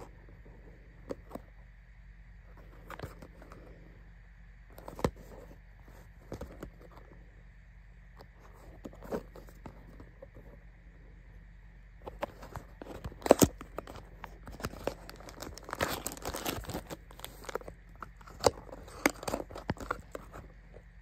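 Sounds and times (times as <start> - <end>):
low steady hum: 0.0 - 21.0
fingers handling cardboard box: 4.7 - 7.2, 8.2 - 10.6, 12.0 - 20.9.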